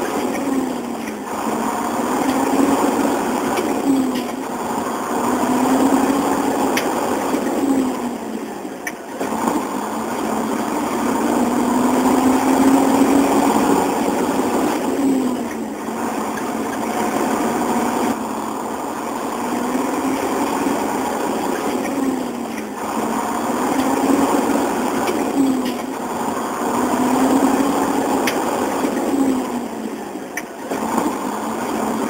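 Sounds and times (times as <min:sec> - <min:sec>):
truck engine shifting gears: 0:00.0 - 0:32.0.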